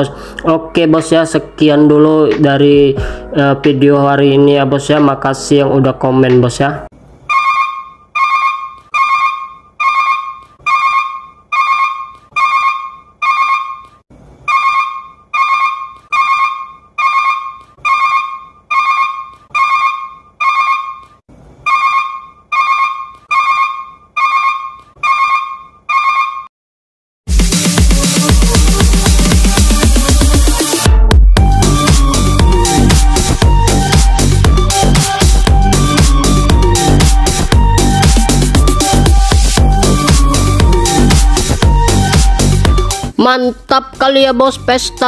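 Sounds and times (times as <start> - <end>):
electronic ringtone pings: 7.3 - 13.9, 14.5 - 21.0
electronic dance music: 27.3 - 45.0.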